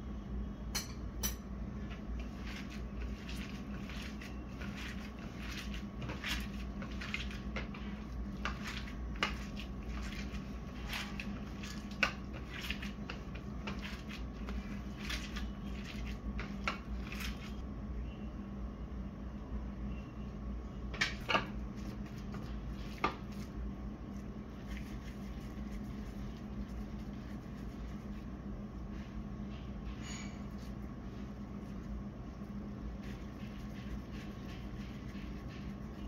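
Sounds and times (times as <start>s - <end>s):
hands squishing minced meat: 1.9s - 17.6s, 21.7s - 28.8s, 30.5s - 36.0s.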